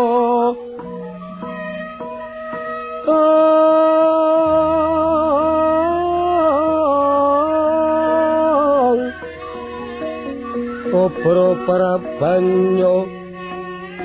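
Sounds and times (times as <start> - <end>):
person singing a long note: 0.0 - 14.0
gamelan accompaniment: 0.8 - 3.8, 7.9 - 14.0.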